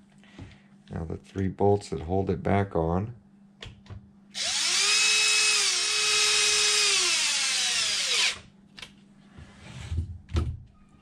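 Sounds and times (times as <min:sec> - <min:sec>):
cordless drill motor whine: 0:04.4 - 0:08.5.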